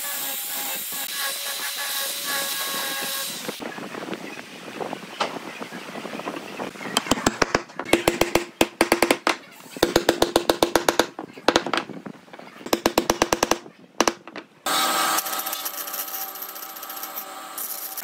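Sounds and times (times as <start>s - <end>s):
wood block rapping on wood: 7.0s - 11.9s, 12.6s - 14.4s.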